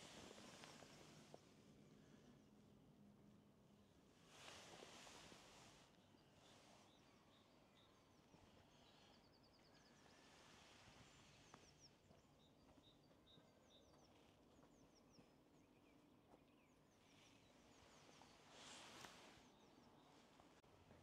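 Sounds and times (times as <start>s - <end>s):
small birds chirping: 0.0s - 2.6s, 3.9s - 21.0s
background hiss: 0.0s - 12.2s, 17.0s - 20.6s.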